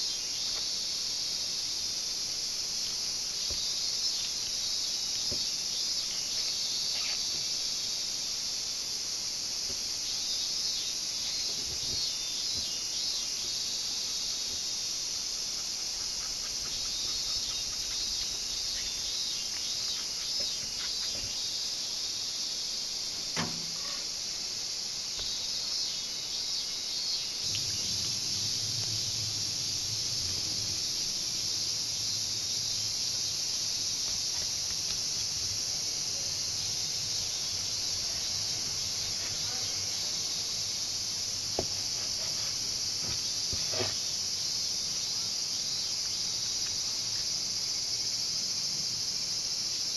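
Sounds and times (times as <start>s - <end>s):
insects chirring: 0.0s - 49.9s
low hum: 27.5s - 32.7s.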